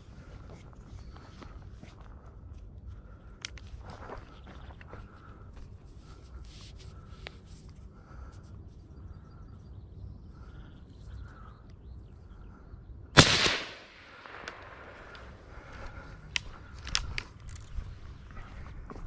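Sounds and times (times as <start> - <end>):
rifle shot with echo: 13.1 - 15.4.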